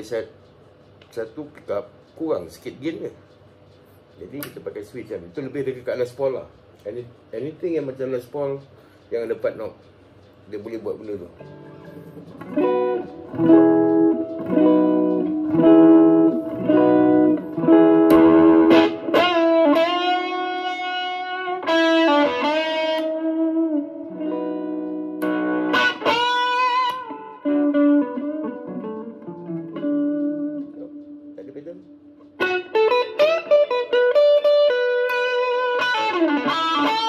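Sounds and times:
electric guitar through amplifier: 0:10.8 - 0:37.0.

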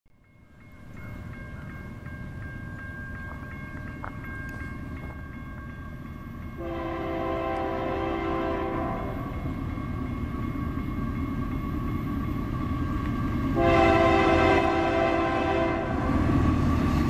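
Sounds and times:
diesel freight train rumbling: 0:00.3 - 0:17.0
locomotive air horn blast: 0:06.6 - 0:09.3, 0:13.6 - 0:16.1.

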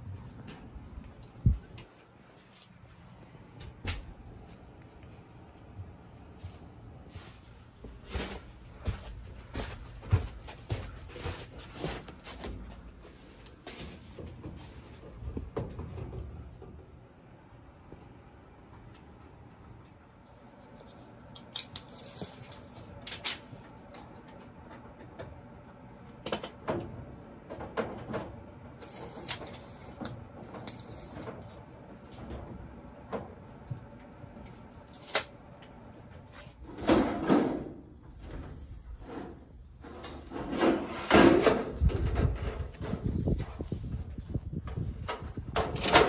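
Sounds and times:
footsteps on stairs: 0:07.4 - 0:15.6.

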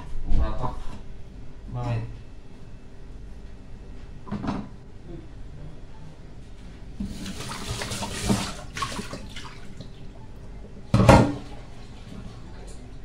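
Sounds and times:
water running from a tap: 0:07.0 - 0:09.9.

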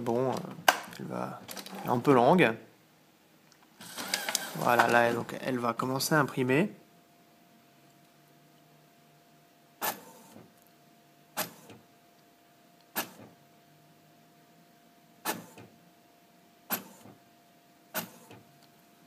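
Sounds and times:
faint steady hum: 0:00.0 - 0:19.0
printer mechanism clunking: 0:03.8 - 0:05.2.

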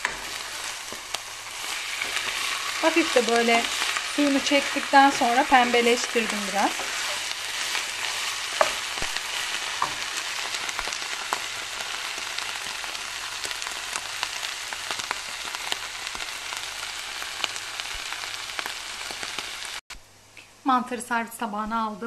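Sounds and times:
wooden spoon scraping a pan: 0:00.0 - 0:11.5
mushrooms sizzling in a frying pan: 0:00.0 - 0:19.8.

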